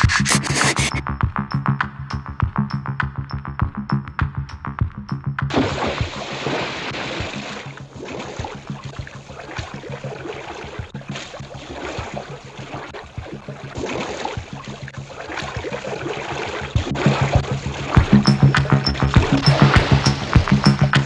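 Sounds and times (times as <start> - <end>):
music with regular beat: 0.0 - 6.3, 10.8 - 15.9, 16.6 - 21.0
underwater bubbling and rushing: 5.5 - 21.0.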